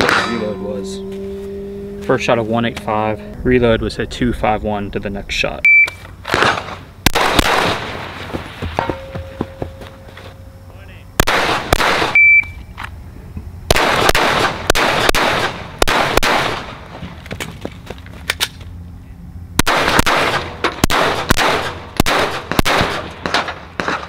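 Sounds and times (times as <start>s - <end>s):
shot timer beep: 5.6s - 6.0s, 12.1s - 12.6s
pistol shots: 6.3s - 8.2s, 11.2s - 12.2s, 13.7s - 16.8s, 19.6s - 24.0s.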